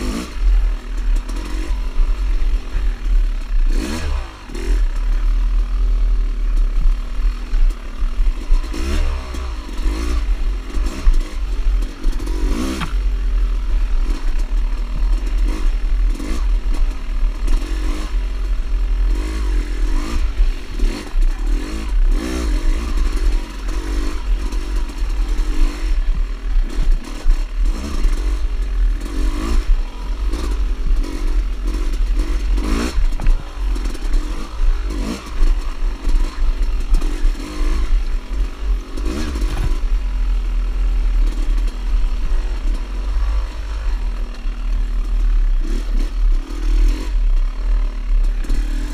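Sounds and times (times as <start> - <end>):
dirt bike engine revving: 0.0 - 48.9
bike rattles and knocks: 19.1 - 40.2.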